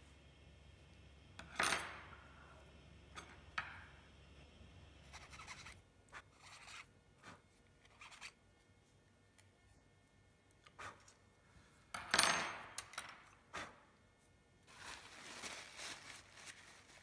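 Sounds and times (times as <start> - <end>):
handling scrapes: 14.7 - 17.0.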